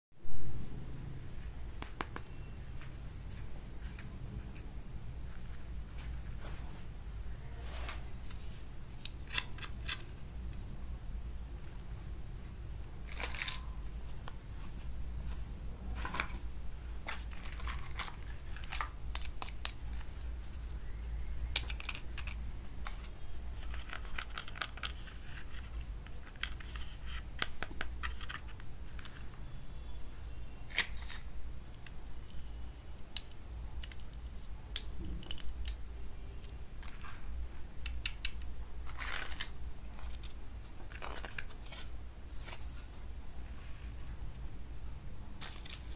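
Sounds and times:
steady low hum: 0:00.2 - 0:45.9
plastic toy pieces clicking: 0:23.6 - 0:25.2.

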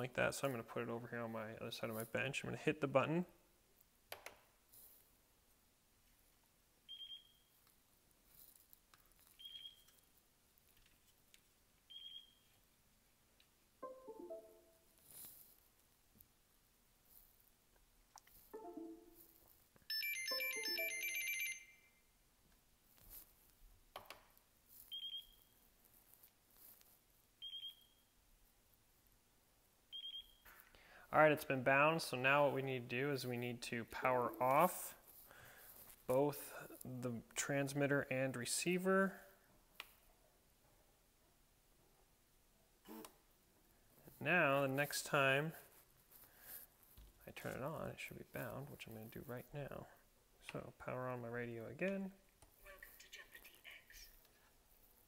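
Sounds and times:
high-pitched transmitter beeps: 0:19.9 - 0:21.6.

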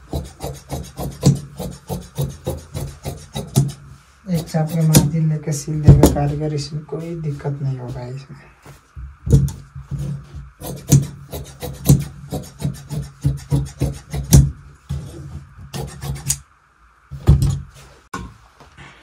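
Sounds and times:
scissors snipping fabric: 0:10.6 - 0:14.4.

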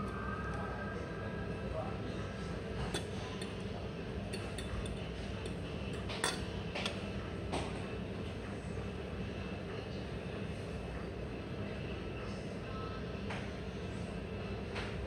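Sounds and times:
metal fork clinking on ceramic plate: 0:02.8 - 0:03.6, 0:04.3 - 0:07.0.

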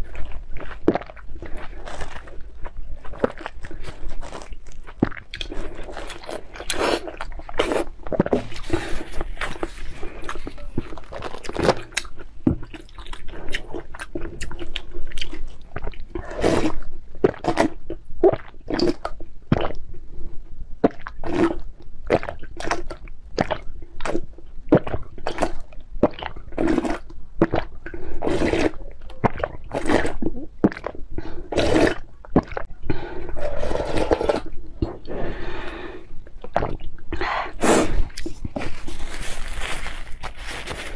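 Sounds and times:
wet chewing: 0:00.0 - 0:19.8, 0:20.8 - 0:40.9
slurping noodle broth: 0:05.1 - 0:12.0, 0:16.2 - 0:17.8, 0:26.6 - 0:36.0, 0:36.6 - 0:40.9.

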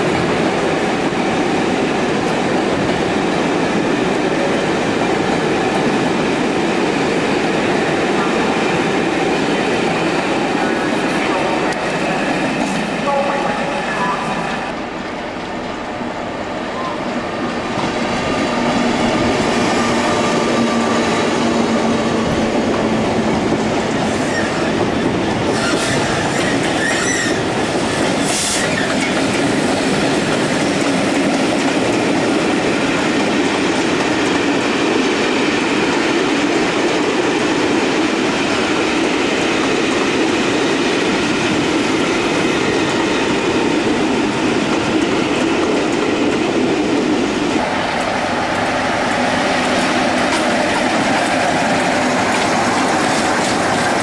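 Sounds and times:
train wheels clattering on track: 0:17.7 - 0:54.0
wheel squeals: 0:26.7 - 0:27.4.

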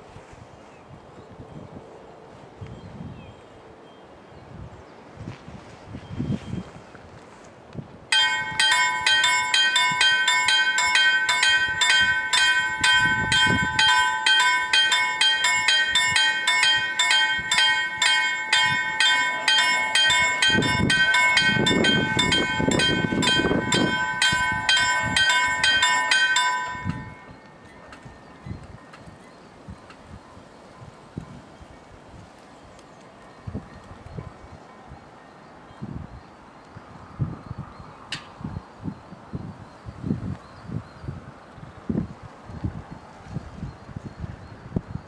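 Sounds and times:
level crossing warning bells: 0:08.1 - 0:29.6.

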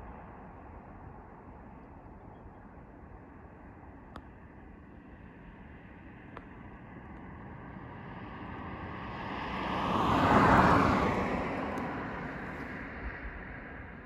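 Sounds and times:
car passing by: 0:07.3 - 0:14.0.

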